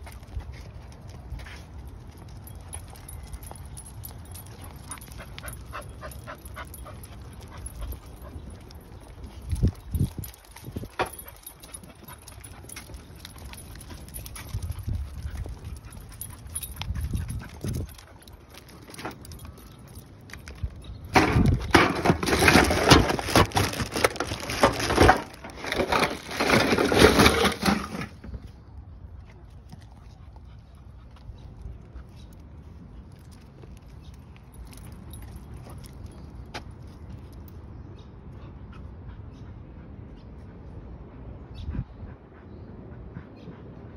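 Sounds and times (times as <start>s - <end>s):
plastic trash bag crinkling: 22.2s - 27.7s.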